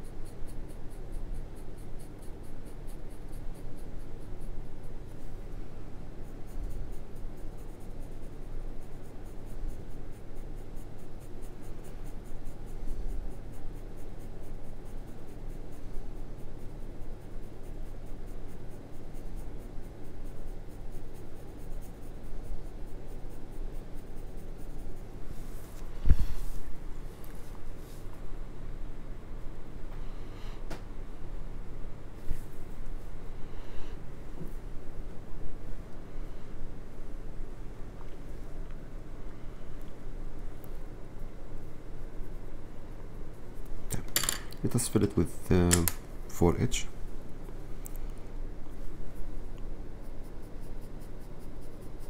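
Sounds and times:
pencil scratching on paper: 0.0s - 5.4s, 6.1s - 26.8s, 50.0s - 52.0s.

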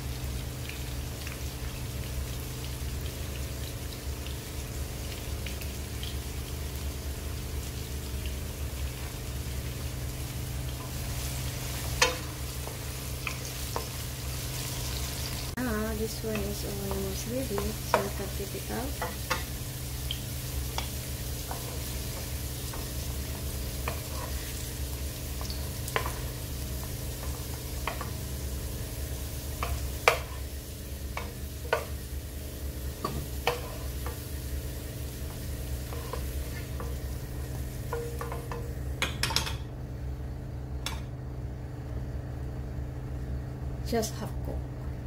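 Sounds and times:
oil sizzling in a wok: 0.0s - 44.2s
spatula scraping a pan: 20.8s - 24.7s, 33.4s - 34.2s, 35.8s - 37.0s.

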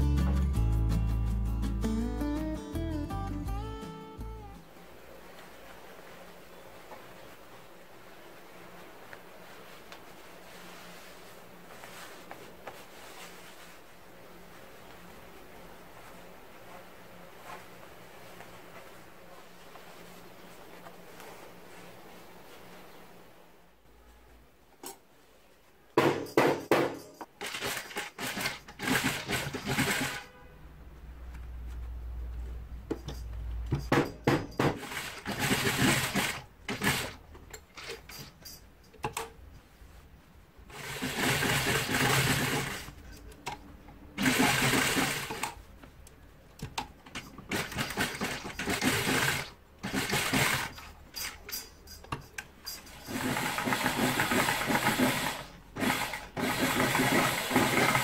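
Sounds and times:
sewing machine stitching: 27.4s - 30.4s, 34.6s - 38.4s, 40.7s - 43.0s, 44.2s - 45.6s, 47.1s - 51.6s, 52.7s - 58.0s.

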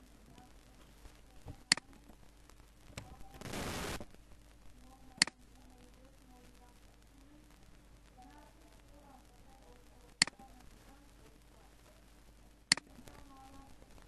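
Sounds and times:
computer mouse clicks: 1.6s - 1.9s, 12.7s - 12.9s.

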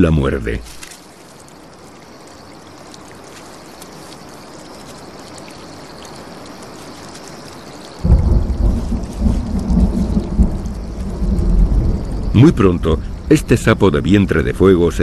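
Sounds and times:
light rain hissing: 0.0s - 15.0s
thunder rumbling: 8.0s - 15.0s.

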